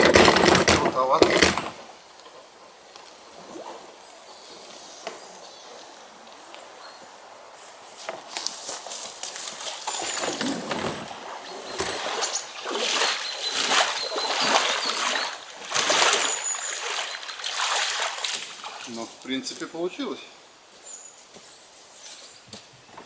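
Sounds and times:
water splashing as person wades: 9.5s - 19.2s.

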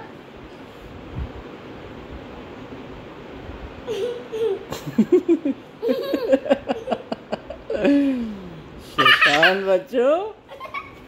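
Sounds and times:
young children giggling: 3.8s - 9.8s, 10.5s - 11.0s.

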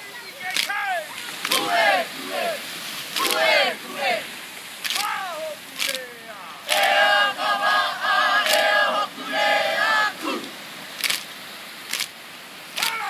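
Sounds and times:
sharp cracks: 0.5s - 1.7s, 3.1s - 3.4s, 4.8s - 6.1s, 11.0s - 13.0s
crowd chanting in unison: 0.9s - 4.6s, 6.5s - 10.8s.

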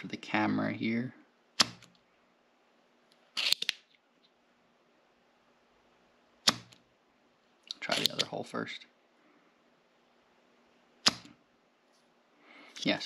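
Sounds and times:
solder sucker sharp snap: 1.6s - 1.9s, 6.4s - 6.8s, 11.0s - 11.4s.

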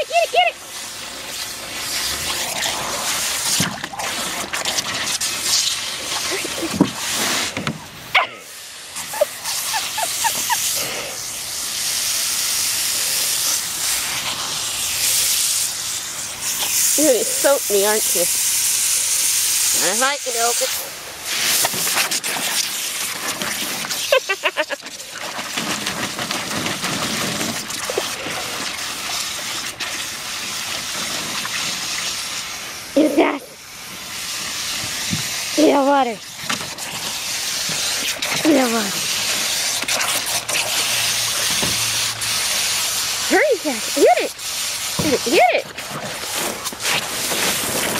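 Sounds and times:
dog splashing in water: 0.6s - 7.9s, 20.6s - 47.9s
hose nozzle spray hissing: 5.3s - 7.7s, 8.4s - 24.8s, 31.5s - 47.9s
dog yelping and yipping: 8.1s - 8.4s, 9.0s - 10.6s.

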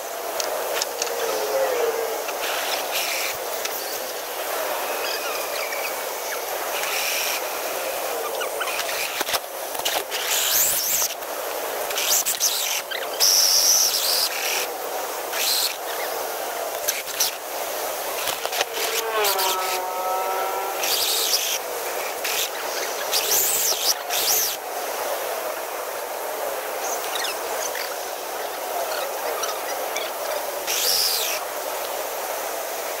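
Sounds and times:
small electric motor whining: 16.9s - 24.5s.

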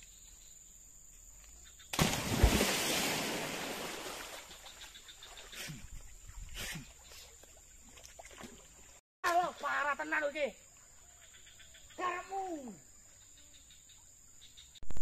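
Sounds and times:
big splash into water: 1.9s - 4.6s
smaller splashes: 1.9s - 9.0s
water churning and sloshing: 2.0s - 9.0s.

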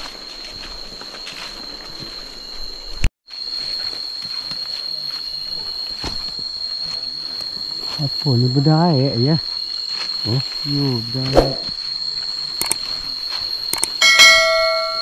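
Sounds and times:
footsteps rustling through undergrowth: 0.0s - 8.2s, 9.1s - 13.7s
high-pitched insect drone: 0.0s - 15.0s
sharp click: 12.6s - 12.8s, 13.7s - 14.0s.

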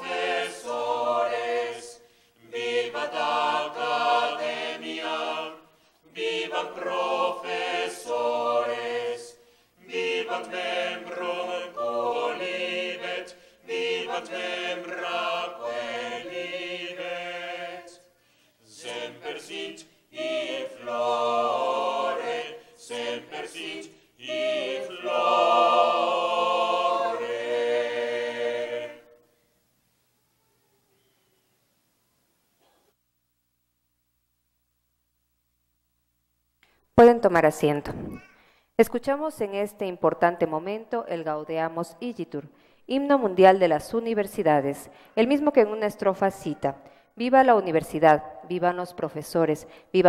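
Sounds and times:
choir singing a cappella: 0.0s - 29.4s.

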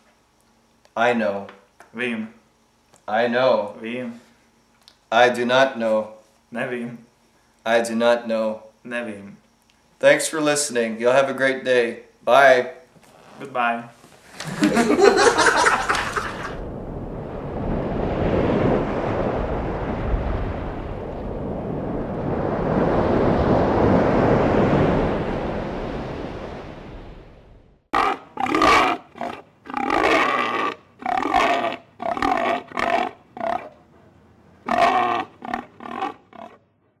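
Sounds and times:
pig squealing and grunting: 28.0s - 33.8s, 34.6s - 36.6s.

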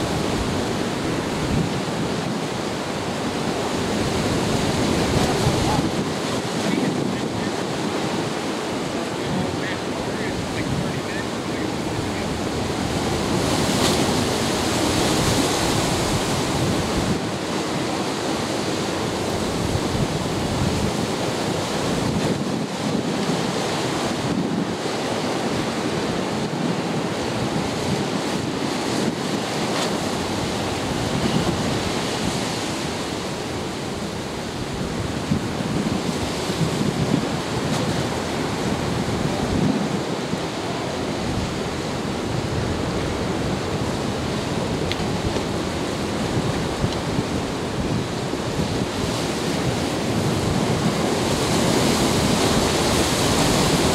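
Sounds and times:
surf washing against rocks: 0.0s - 53.9s
wind buffeting the microphone: 0.0s - 53.9s.

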